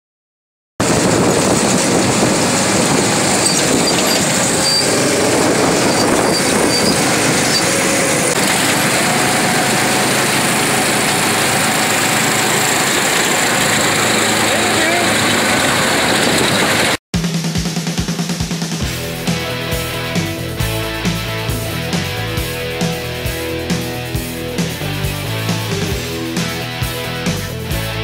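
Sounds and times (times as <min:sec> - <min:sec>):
go-kart engines running: 0:00.8 - 0:17.0
road and wind noise: 0:00.8 - 0:17.0.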